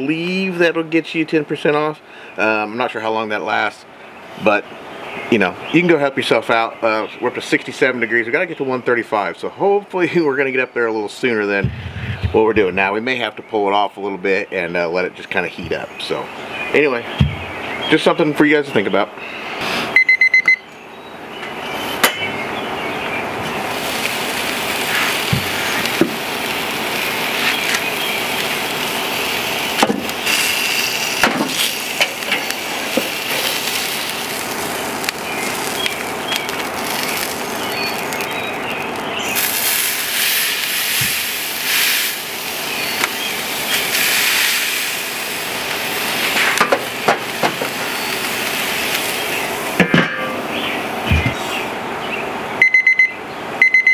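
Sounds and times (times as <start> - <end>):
steak sizzling on a grill: 23.5 - 49.8
metal clanks of grill tools: 31.2 - 33.6, 46.4 - 47.8, 49.8 - 50.6.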